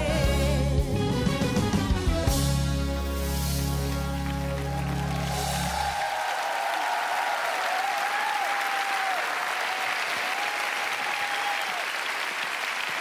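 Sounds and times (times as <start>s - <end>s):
audience applauding: 3.7s - 13.0s
drawn-out cheer: 3.9s - 13.0s.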